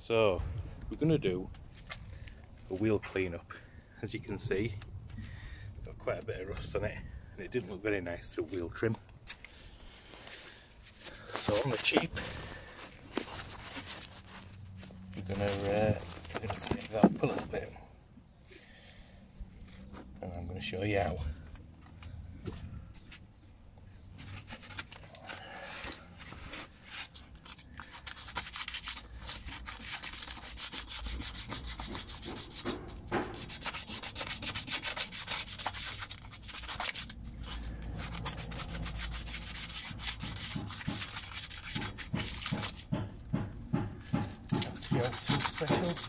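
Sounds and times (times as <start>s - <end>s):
sandpaper rubbing on metal: 15.2s - 17.6s, 26.8s - 43.0s, 44.5s - 46.0s.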